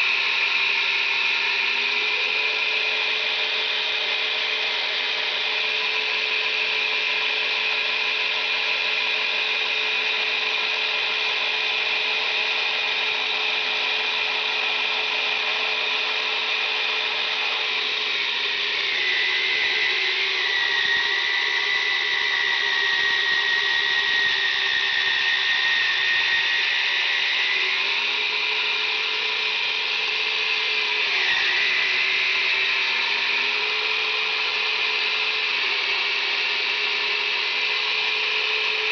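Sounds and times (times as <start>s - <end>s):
electric motor whining: 14.5s - 38.9s.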